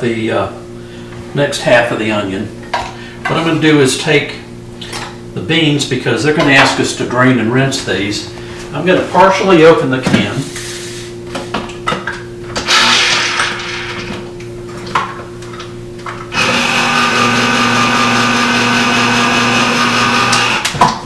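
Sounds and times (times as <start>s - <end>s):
electric can opener motor: 12.6s - 14.1s, 16.2s - 21.0s.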